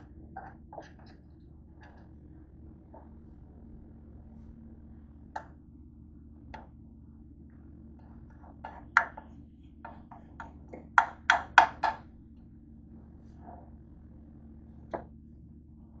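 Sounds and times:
spoon knocking against pan: 0:09.9 - 0:12.0.

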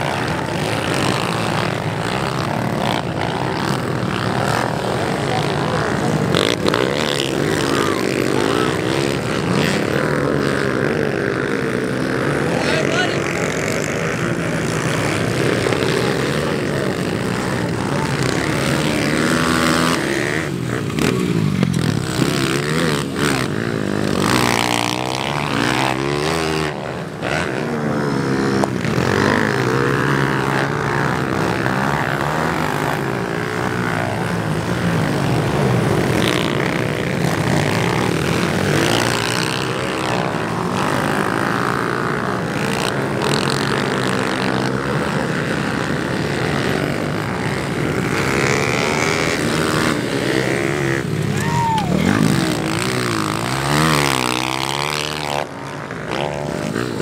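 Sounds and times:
small motorbike engines revving: 0:00.0 - 0:57.0.

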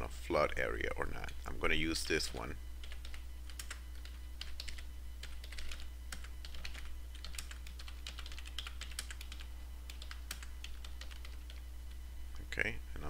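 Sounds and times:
steady low hum: 0:00.0 - 0:13.0
computer keyboard typing: 0:02.8 - 0:11.6.

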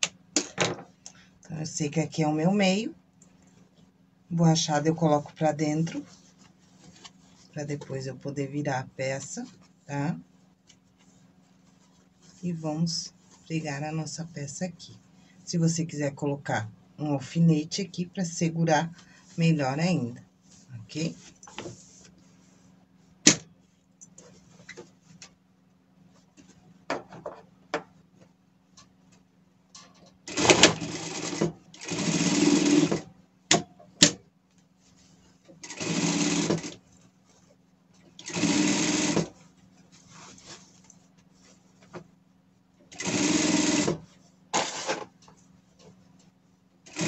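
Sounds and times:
sewing machine stitching: 0:30.3 - 0:33.1, 0:35.6 - 0:36.8, 0:38.2 - 0:39.4, 0:42.9 - 0:45.1.

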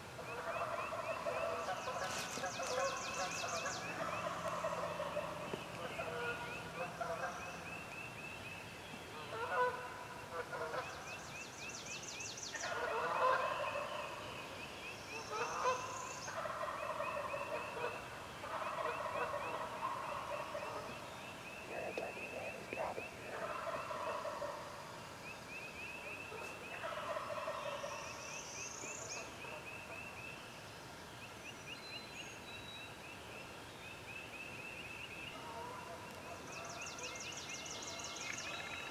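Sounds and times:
turkeys gobbling: 0:00.3 - 0:07.4, 0:12.6 - 0:14.1, 0:15.4 - 0:20.9, 0:21.7 - 0:24.8, 0:26.3 - 0:28.0
small birds chirping: 0:00.6 - 0:09.6, 0:14.5 - 0:24.4, 0:31.2 - 0:38.9.

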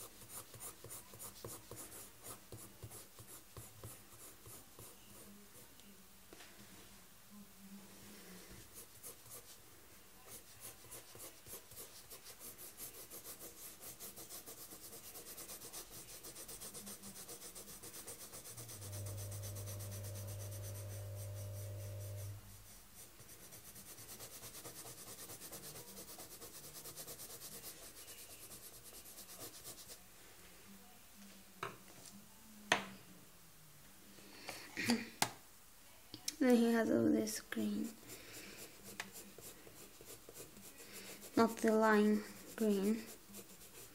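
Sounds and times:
colored pencil scratching on paper: 0:00.0 - 0:05.7, 0:08.4 - 0:09.6, 0:10.2 - 0:30.0, 0:37.3 - 0:43.9
low steady hum: 0:17.1 - 0:23.6.

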